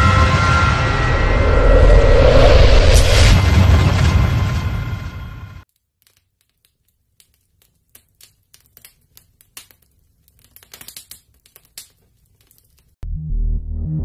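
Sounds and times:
embers crackling: 5.6 - 13.0.

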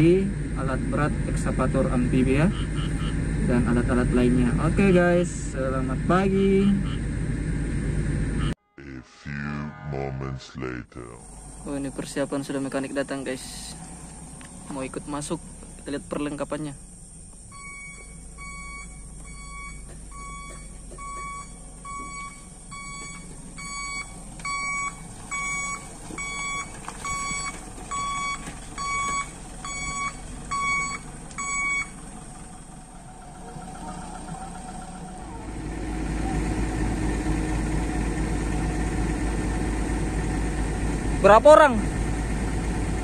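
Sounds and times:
engine running: 0.0 - 43.0
reversing alarm beeping: 17.5 - 32.0, 32.6 - 35.7.

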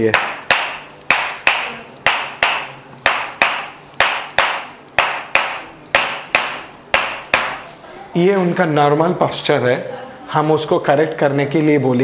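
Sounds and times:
mallet striking wooden instrument: 0.0 - 7.6.

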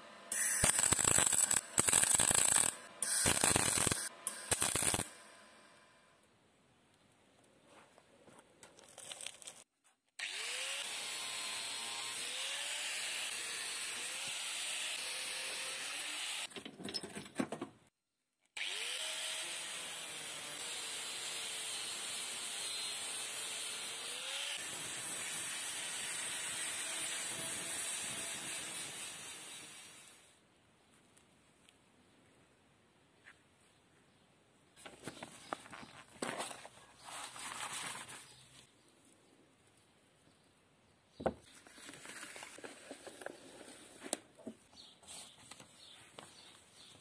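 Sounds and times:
angle grinder grinding iron: 0.3 - 5.6.

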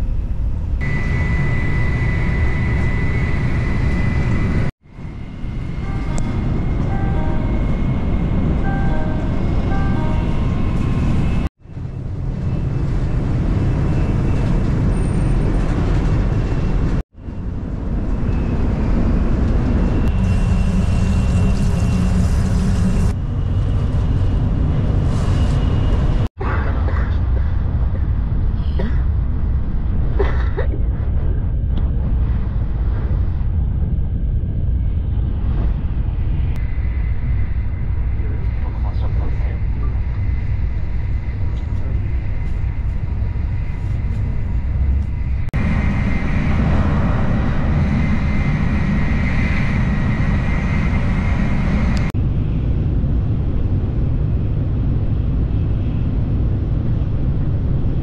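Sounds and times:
train rumble inside cabin: 0.0 - 58.0
high electronic notes: 5.8 - 11.5.

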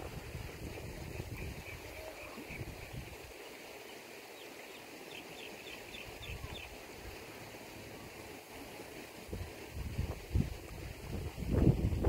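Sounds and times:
wind buffeting microphone: 0.0 - 3.3, 9.2 - 12.0
songbirds chirping: 0.6 - 9.0.

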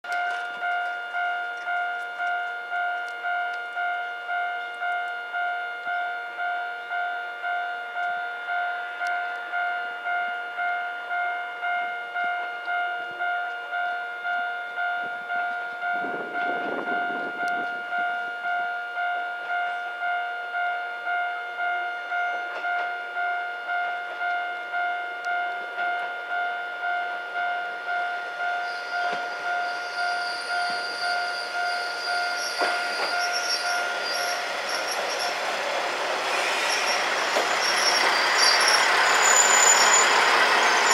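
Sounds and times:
diesel railcar approaching: 0.0 - 40.9
wheel and brake squeal: 28.6 - 40.9.

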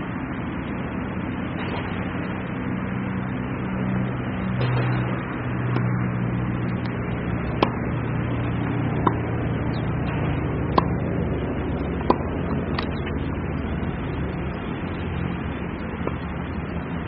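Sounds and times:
low background hum: 0.0 - 17.0
tennis ball being struck: 5.7 - 5.9, 6.9 - 8.0, 8.6 - 11.1, 11.9 - 13.0.

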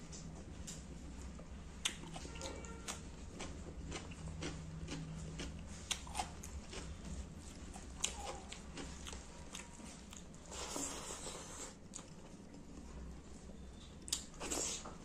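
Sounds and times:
chewing with sharp crunches: 1.8 - 12.9.

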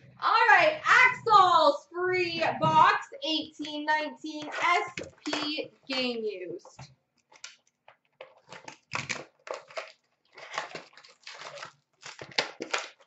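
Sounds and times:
plastic wrapping crinkling: 7.2 - 13.0.

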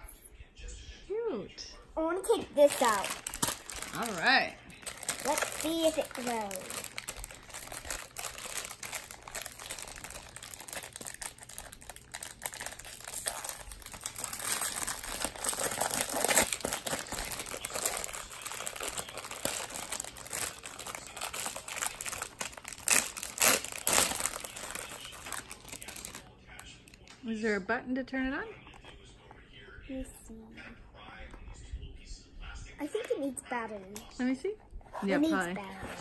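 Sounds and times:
plastic bag crinkling: 2.2 - 26.3.

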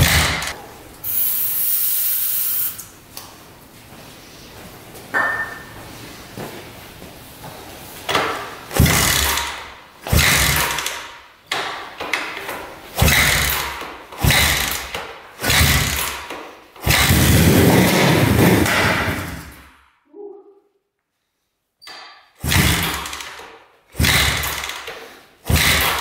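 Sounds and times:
motorcycle engine cranking: 8.7 - 11.1, 12.2 - 18.3, 22.4 - 26.0.

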